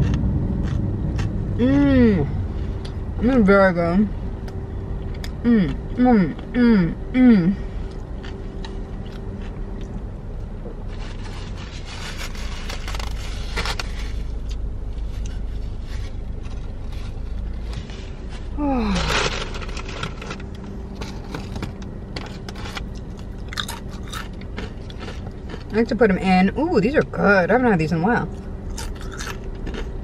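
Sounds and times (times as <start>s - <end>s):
steady low hum: 0.0s - 30.0s
paper wrapping rustling: 10.9s - 14.5s, 15.1s - 21.8s.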